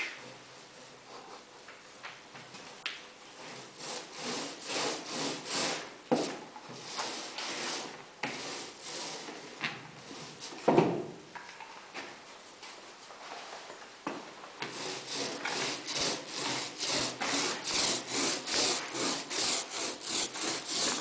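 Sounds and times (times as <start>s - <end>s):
paintbrush brushing on wood: 14.7s - 21.0s.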